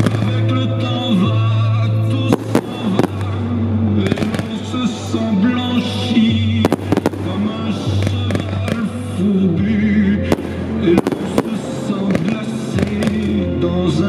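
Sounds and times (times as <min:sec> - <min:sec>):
fireworks bursting with sharp bangs: 0:00.0 - 0:09.3, 0:10.2 - 0:14.0
music with low notes and melody: 0:00.0 - 0:14.0.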